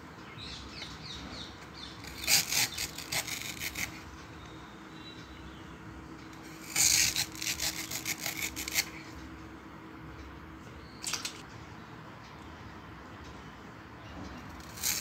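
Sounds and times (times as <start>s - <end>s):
blade scraping plant stem: 2.0s - 4.0s, 6.4s - 9.2s, 14.5s - 15.0s.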